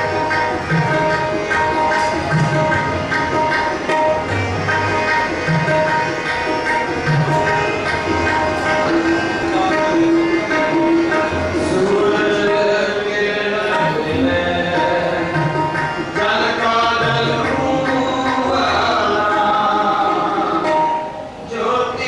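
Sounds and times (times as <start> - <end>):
harmonium chords: 0.0 - 22.0
tabla beat: 0.0 - 22.0.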